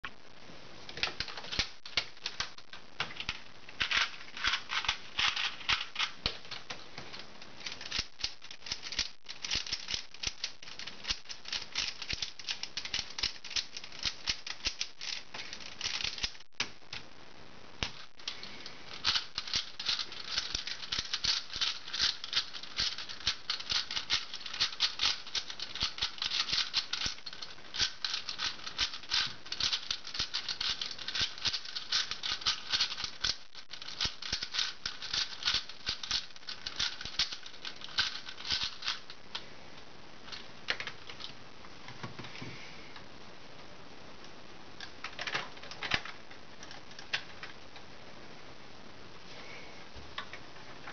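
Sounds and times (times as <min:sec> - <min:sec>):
plastic puzzle cube clicking: 0:01.0 - 0:06.7, 0:07.6 - 0:17.0, 0:17.8 - 0:39.4.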